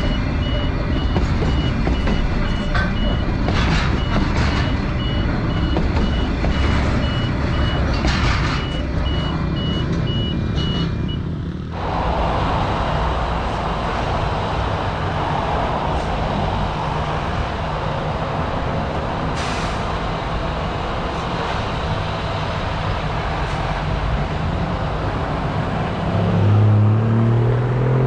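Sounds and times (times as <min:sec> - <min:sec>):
engine speeding up: 0:11.4 - 0:28.0
freight train passing: 0:11.7 - 0:26.8.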